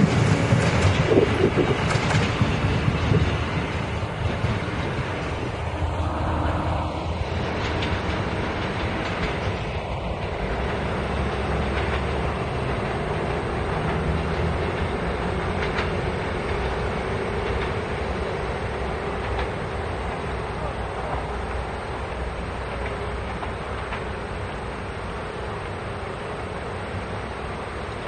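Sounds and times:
train low drone: 0:00.0 - 0:28.0
wheel and rail noise: 0:00.0 - 0:28.0
clicks over rail joints: 0:07.5 - 0:18.0, 0:19.2 - 0:20.3.

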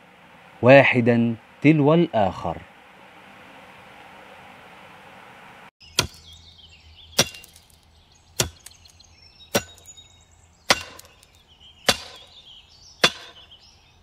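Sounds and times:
axe chops with ringing tail: 0:06.0 - 0:06.3, 0:07.2 - 0:07.6, 0:08.4 - 0:08.7, 0:09.5 - 0:09.9, 0:10.7 - 0:11.2, 0:11.9 - 0:12.3, 0:13.0 - 0:13.4.

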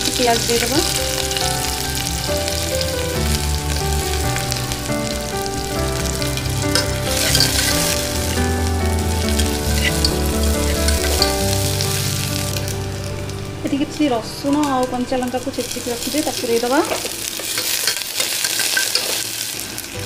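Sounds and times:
onions sizzling in hot oil: 0:00.0 - 0:20.0
metal spatula stirring: 0:06.7 - 0:11.8, 0:16.2 - 0:19.5.

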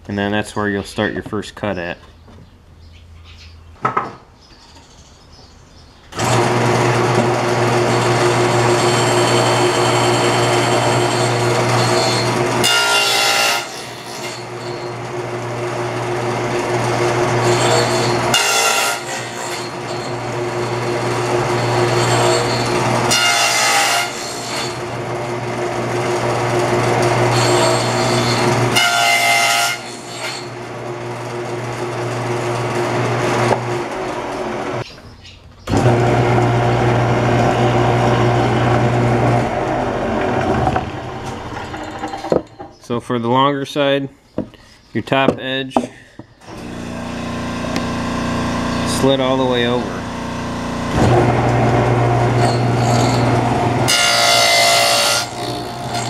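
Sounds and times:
saw blade cutting wood: 0:06.2 - 0:34.2, 0:46.4 - 0:56.0
table saw running: 0:06.2 - 0:34.8, 0:35.7 - 0:42.6, 0:46.4 - 0:56.0.

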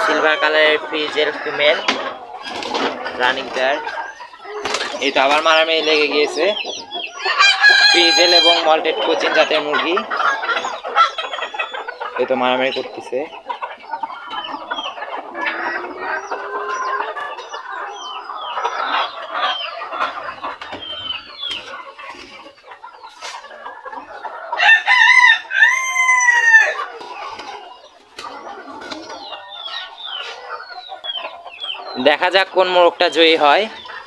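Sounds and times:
chickens clucking: 0:00.0 - 0:34.0
rooster crowing: 0:07.2 - 0:08.7, 0:24.6 - 0:26.8.

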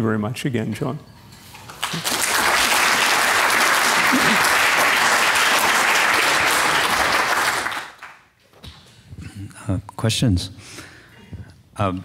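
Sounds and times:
audience applauding: 0:01.7 - 0:08.2.

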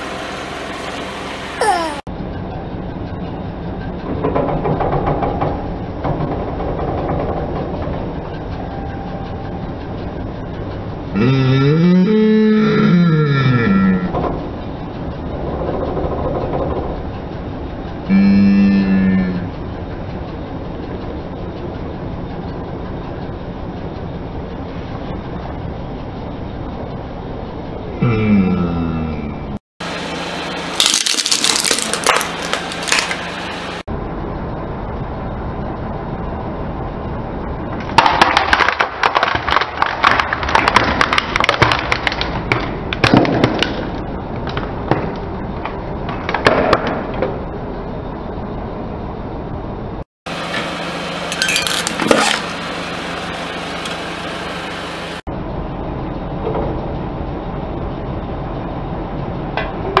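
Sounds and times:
steady background noise: 0:00.0 - 0:13.3, 0:13.9 - 1:00.0
plastic cracking under car tyre: 0:30.8 - 0:33.2, 0:38.0 - 0:45.1.

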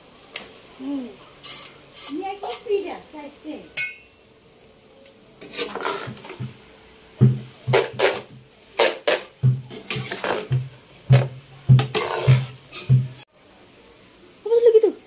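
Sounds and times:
metal scraping non-stick pan: 0:01.4 - 0:02.8, 0:05.4 - 0:06.5, 0:07.2 - 0:13.2
metal utensils clinking: 0:05.4 - 0:06.3, 0:07.7 - 0:13.0.

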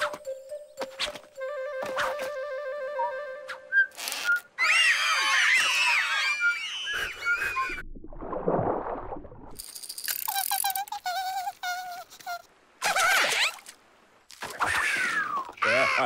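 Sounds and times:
squeaky gliding cartoon cries: 0:04.0 - 0:07.8, 0:10.3 - 0:13.6, 0:14.6 - 0:16.0
cartoon rattling noise: 0:09.6 - 0:11.5.

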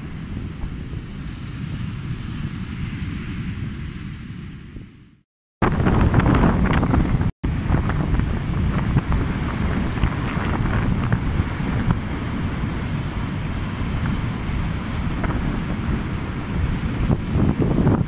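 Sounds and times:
wind buffeting microphone: 0:00.0 - 0:18.0
surf breaking on beach: 0:05.6 - 0:18.0.

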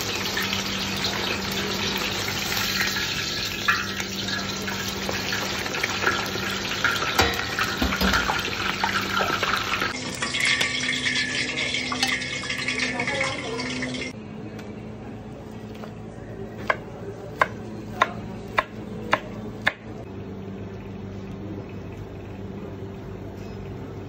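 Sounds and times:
oil sizzling and crackling: 0:00.0 - 0:14.2.

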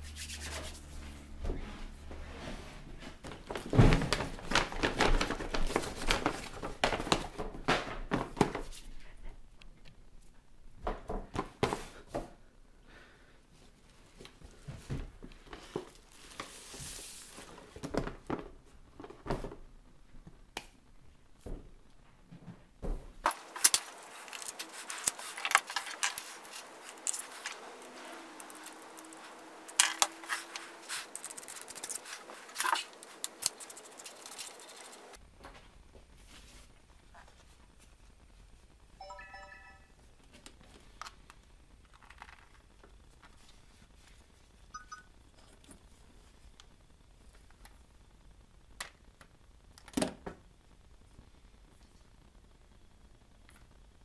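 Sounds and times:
paper and tissue rustling: 0:03.4 - 0:07.4, 0:15.5 - 0:17.8, 0:23.2 - 0:35.2.

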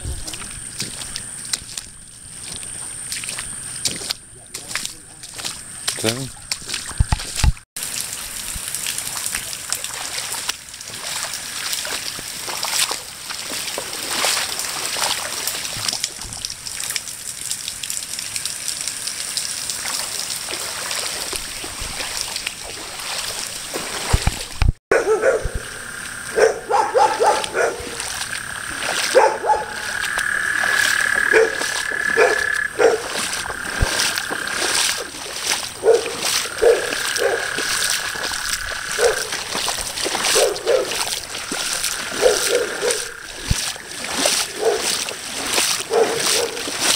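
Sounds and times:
frogs croaking: 0:00.0 - 0:07.6, 0:25.0 - 0:46.9
rain spattering on water: 0:00.0 - 0:24.7, 0:25.6 - 0:46.9.

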